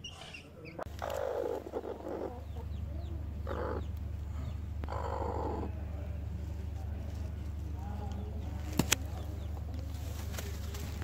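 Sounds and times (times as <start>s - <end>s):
hen rasping calls: 0.0s - 5.8s
steady low hum: 0.8s - 11.0s.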